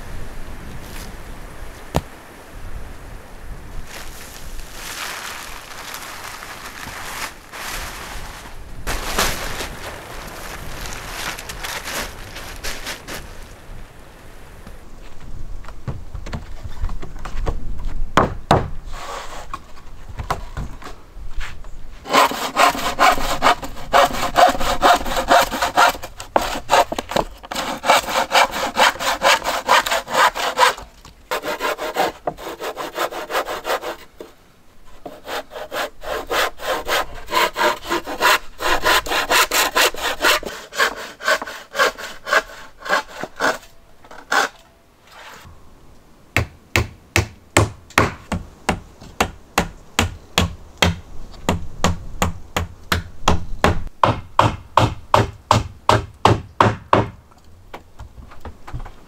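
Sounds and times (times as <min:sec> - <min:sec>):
hammer knocking on boards: 0:18.2 - 0:18.7, 0:46.4 - 0:57.2
hand saw cutting wood: 0:22.0 - 0:34.3, 0:35.0 - 0:45.5.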